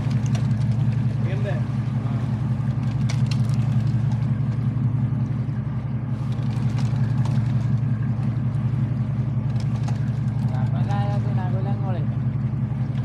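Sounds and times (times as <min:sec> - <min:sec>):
boat engine droning: 0:00.0 - 0:13.0.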